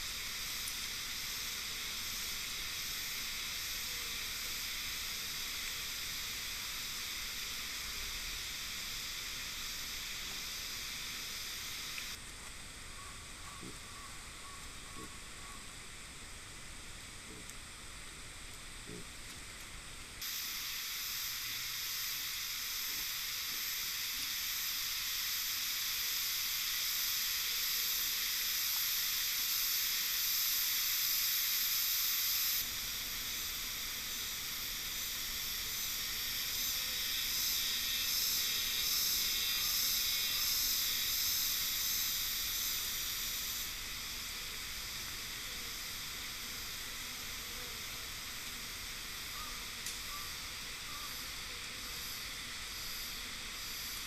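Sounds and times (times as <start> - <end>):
steady high-pitched hiss: 0.0 - 54.0.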